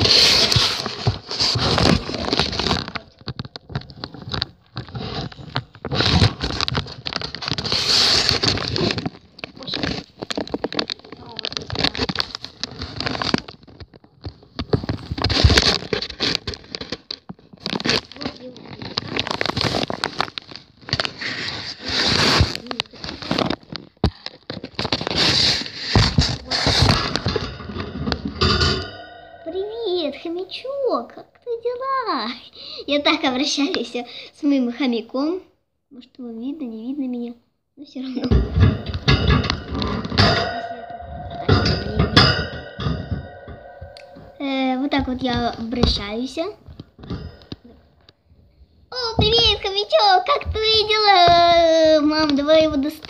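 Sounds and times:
tablet handling rustling and scraping: 0:00.0 - 0:30.6.

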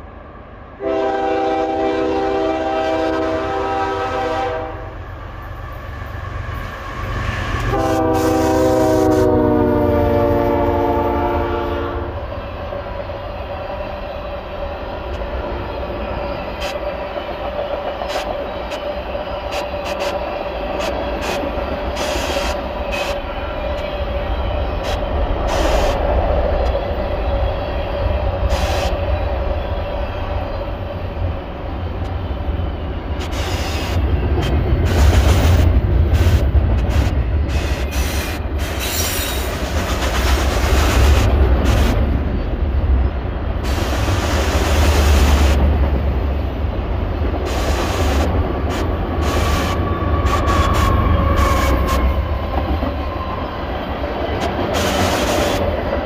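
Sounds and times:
locomotive air horn blasts: 0:00.8 - 0:05.0, 0:07.7 - 0:12.2.

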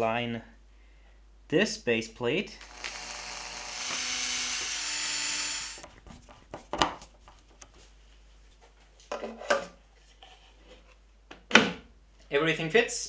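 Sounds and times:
cordless drill running: 0:02.6 - 0:05.9.

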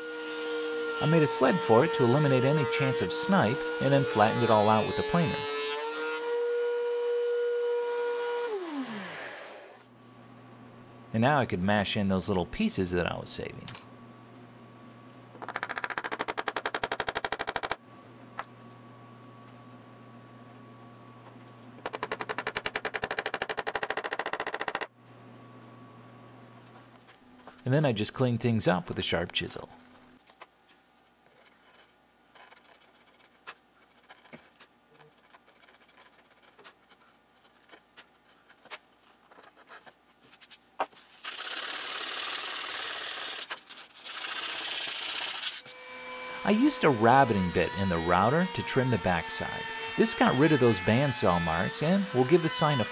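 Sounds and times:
rapid sharp tapping on wood: 0:15.4 - 0:17.8, 0:21.8 - 0:24.9
chisel scraping wood: 0:31.2 - 0:42.0
sandpaper scratching wood: 0:31.5 - 0:37.8, 0:38.6 - 0:45.8, 0:46.5 - 0:52.9.

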